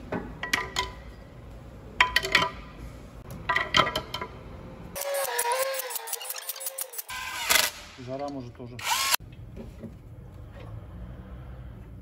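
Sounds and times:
power drill whirring: 0:05.0 - 0:07.8, 0:08.8 - 0:09.2.

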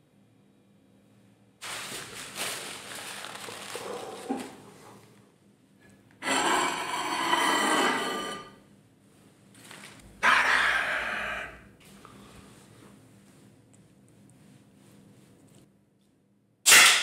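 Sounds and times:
plate scraping on slate board: 0:06.3 - 0:08.5.

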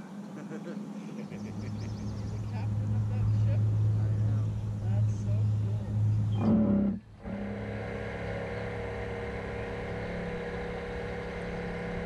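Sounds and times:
electric motor humming: 0:01.3 - 0:12.0.

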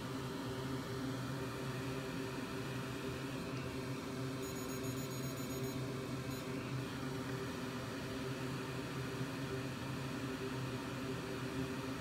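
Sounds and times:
machine hum with hiss: 0:00.0 - 0:12.0
faint high-pitched electronic tone: 0:04.4 - 0:06.5.

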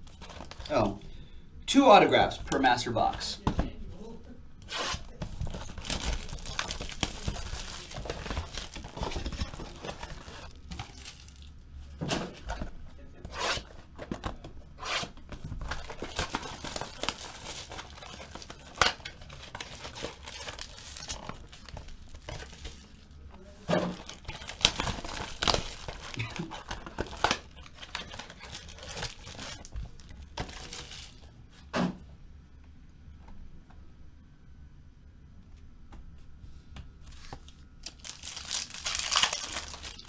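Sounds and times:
plastic shrink wrap tearing: 0:04.6 - 0:11.6, 0:14.8 - 0:31.2, 0:37.8 - 0:40.0
plastic wrap snapping: 0:05.0 - 0:11.6, 0:15.4 - 0:23.0, 0:23.9 - 0:31.2, 0:37.8 - 0:40.0.

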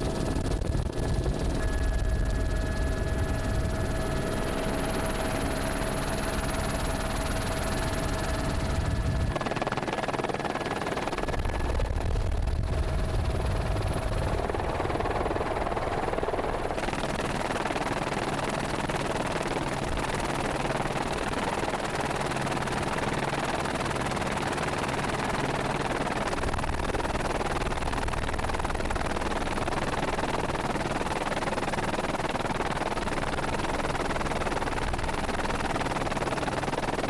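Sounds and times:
helicopter rotor and engine drone: 0:00.0 - 0:37.0
rushing wind: 0:00.1 - 0:05.1, 0:06.7 - 0:17.8.

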